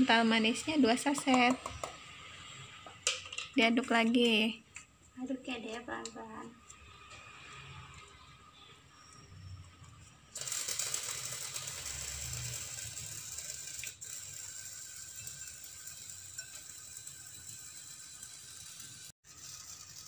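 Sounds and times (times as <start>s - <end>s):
whisk rattling in glass bowl: 10.4s - 20.0s.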